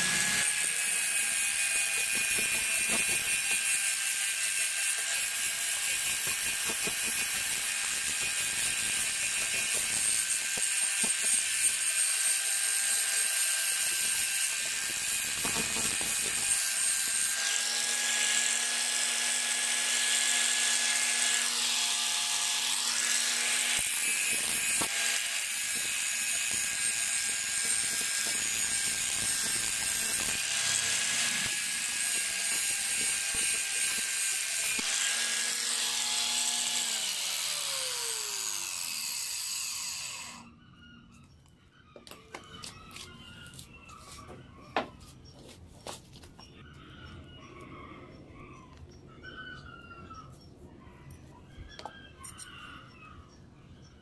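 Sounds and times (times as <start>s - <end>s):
angle grinder grinding metal: 0.0s - 40.5s.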